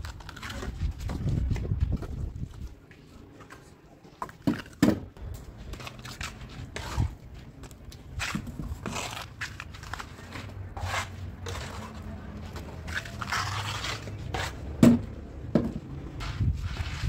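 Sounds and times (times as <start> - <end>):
trowel scraping cement on wall: 5.7 - 7.2, 8.1 - 15.1.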